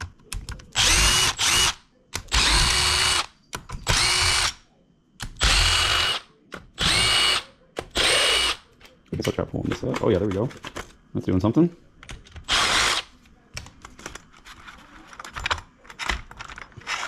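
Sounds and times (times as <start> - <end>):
cordless drill motor whining: 0.8 - 3.3, 3.9 - 4.5, 5.4 - 6.2, 6.8 - 7.4, 8.0 - 8.6, 12.5 - 13.0.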